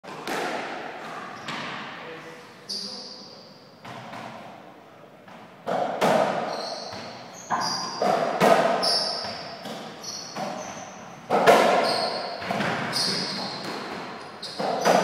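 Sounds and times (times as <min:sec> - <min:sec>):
ball hitting racquets and wall: 0:00.1 - 0:02.0, 0:03.8 - 0:04.6, 0:05.3 - 0:15.0
shoe squeaks: 0:02.6 - 0:03.6, 0:06.4 - 0:15.0.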